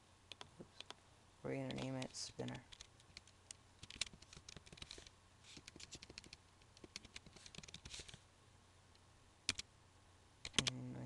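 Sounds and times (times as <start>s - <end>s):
faint keyboard typing: 0.3s - 1.0s, 1.6s - 8.2s, 9.5s - 9.7s, 10.4s - 10.9s.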